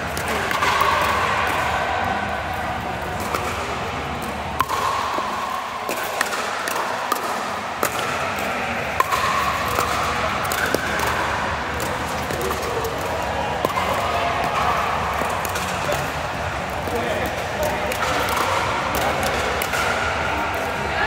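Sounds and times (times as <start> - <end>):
background noise: 0.0 - 21.0
paddles striking plastic ball: 3.2 - 16.2.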